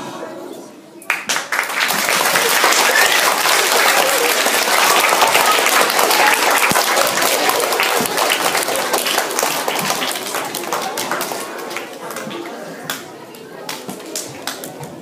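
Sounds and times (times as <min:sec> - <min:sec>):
crowd applauding: 0:01.1 - 0:12.3.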